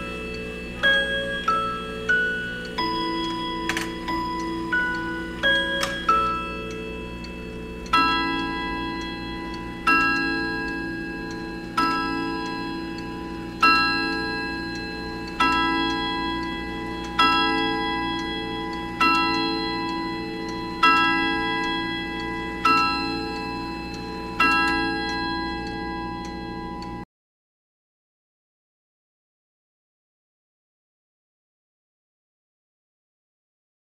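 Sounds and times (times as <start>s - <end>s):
clock gong strokes: 0.0s - 27.0s
clock ticking: 0.0s - 27.0s.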